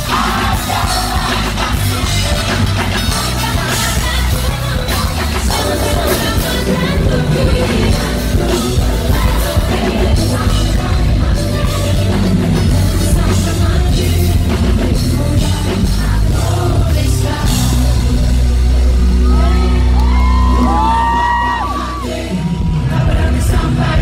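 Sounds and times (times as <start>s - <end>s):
live band playing pop: 0.0s - 24.0s
woman singing into a microphone: 3.1s - 16.0s.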